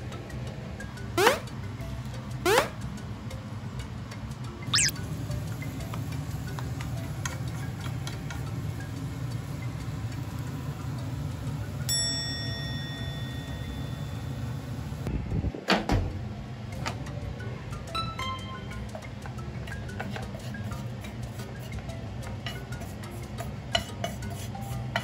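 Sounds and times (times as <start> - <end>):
ringing ding: 11.9 - 14.2.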